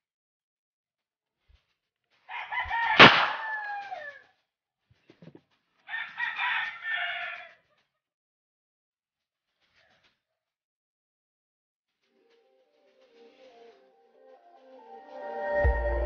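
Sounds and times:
rooster crowing: 2.3s - 4.3s, 5.9s - 7.6s
marble gun firing bang: 3.0s - 3.7s.

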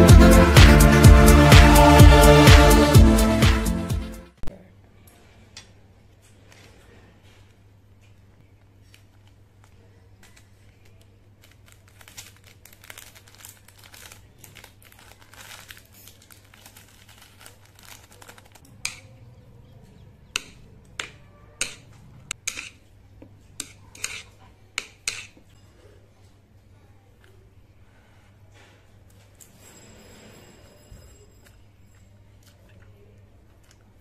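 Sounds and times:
crinkly rustling: 6.4s - 18.9s
chopsticks clicking on plate: 20.4s - 22.8s.

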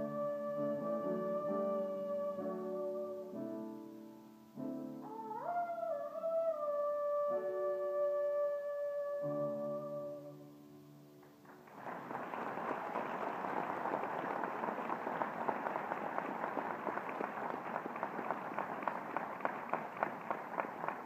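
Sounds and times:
audience applause: 11.2s - 21.0s.

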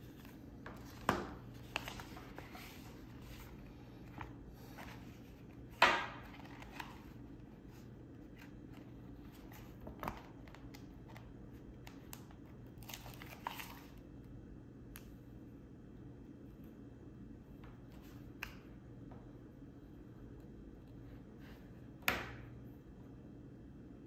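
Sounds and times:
sticker sheets rustling: 0.0s - 11.2s.

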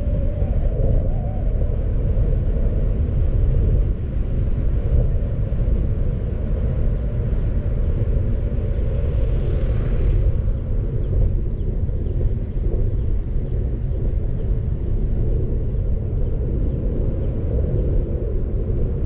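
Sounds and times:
wind noise: 0.0s - 19.0s
road noise: 5.6s - 12.5s.

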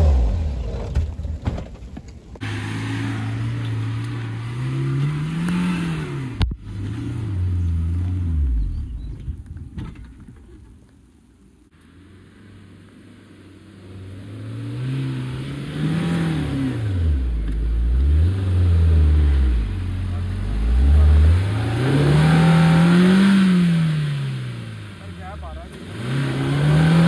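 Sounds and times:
car engine revving: 2.4s - 9.2s, 13.4s - 27.0s.

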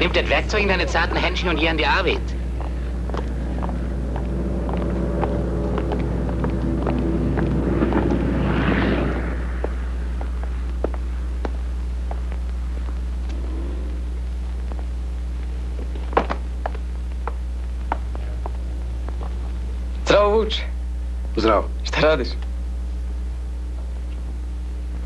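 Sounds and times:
rumbling noise: 0.0s - 20.0s
steady low hum: 0.0s - 25.0s.

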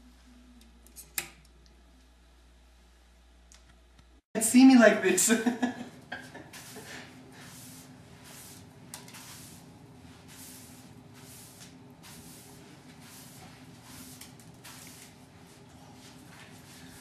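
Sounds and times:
push broom swishing: 6.4s - 17.0s.

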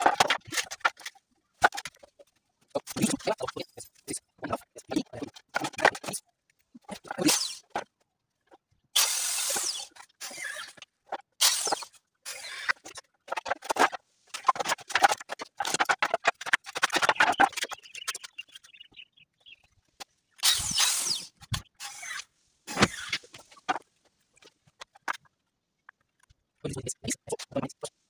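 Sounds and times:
wooden planks knocking together: 0.0s - 3.6s, 4.5s - 6.2s, 12.6s - 18.7s, 22.7s - 25.3s
power drill driving screws: 9.0s - 10.8s.

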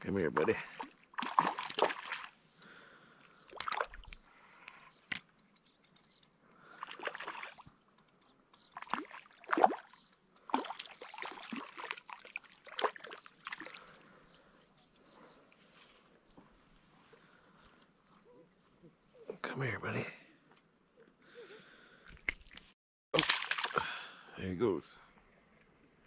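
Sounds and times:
fish splashing at water surface: 0.4s - 4.1s, 6.5s - 7.8s, 8.7s - 14.1s, 23.2s - 24.0s.

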